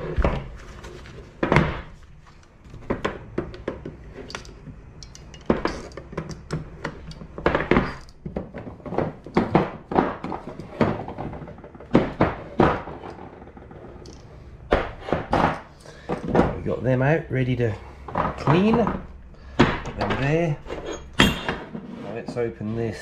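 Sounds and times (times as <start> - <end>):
lead sinkers knocking and clinking: 18.0 - 21.7.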